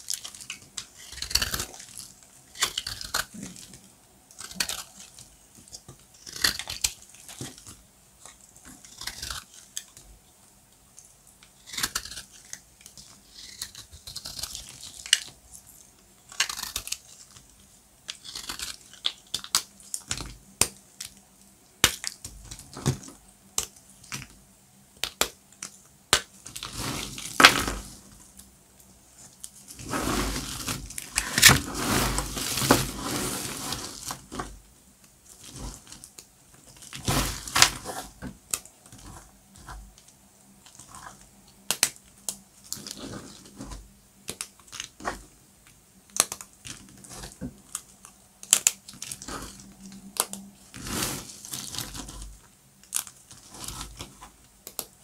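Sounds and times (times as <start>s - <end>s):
dry soap crunching as cut: 0.0s - 7.8s, 8.8s - 10.0s, 11.5s - 15.4s, 16.2s - 21.2s.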